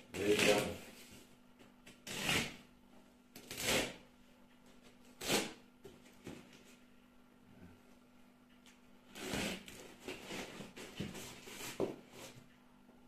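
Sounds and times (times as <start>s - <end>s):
cardboard parcel scraping and rustling: 9.1s - 12.4s.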